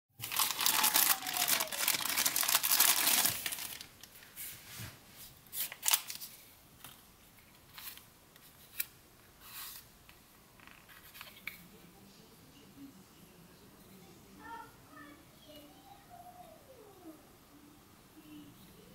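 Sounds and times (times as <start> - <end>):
plastic bag crinkling: 0.2 - 4.3, 5.6 - 6.3.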